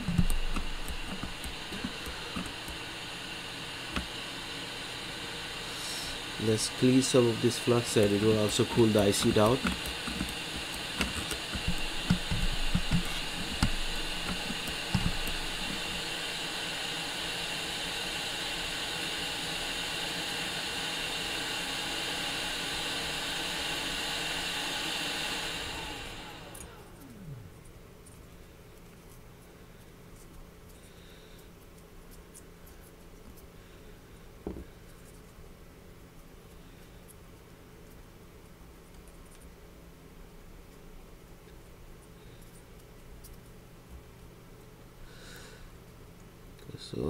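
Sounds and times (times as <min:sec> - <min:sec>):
fan-like hiss of electronics equipment: 0:00.0 - 0:38.7, 0:44.4 - 0:47.0
soft knocks on a bench: 0:34.4 - 0:34.7.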